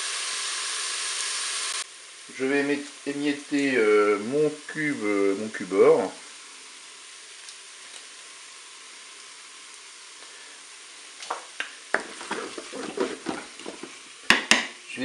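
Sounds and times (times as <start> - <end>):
chicken and onion sizzling: 0.0 - 15.0
wooden spatula scraping pot: 11.9 - 14.1.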